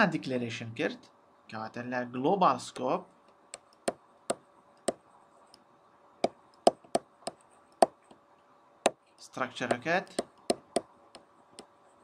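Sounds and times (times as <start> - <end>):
stylus tapping on pen tablet: 3.6 - 5.0, 6.2 - 8.2, 9.7 - 11.7.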